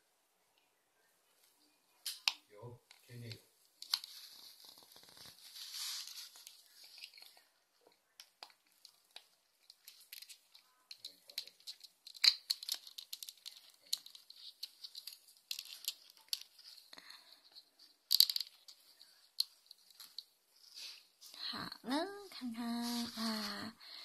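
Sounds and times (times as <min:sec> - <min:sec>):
plastic toys clicking and rattling: 0:08.2 - 0:20.3.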